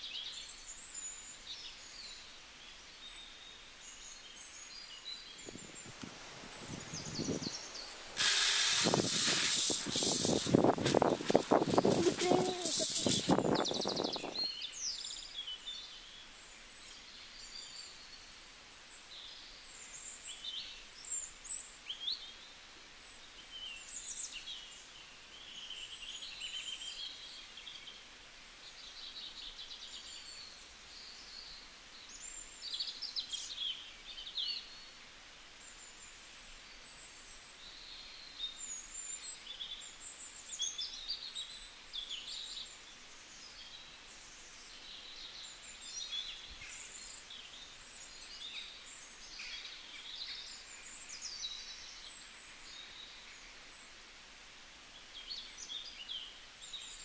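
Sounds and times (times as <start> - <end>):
small birds chirping: 0.0 - 35.0, 35.6 - 54.0
outdoor hiss: 0.0 - 57.0.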